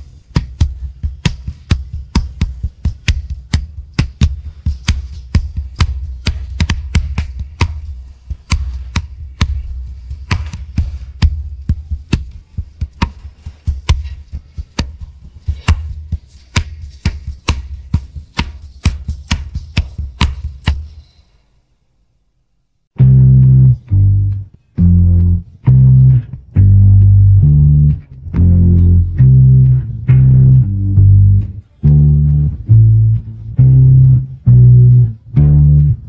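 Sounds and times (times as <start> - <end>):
hands slapping on knees: 0.0 - 21.0.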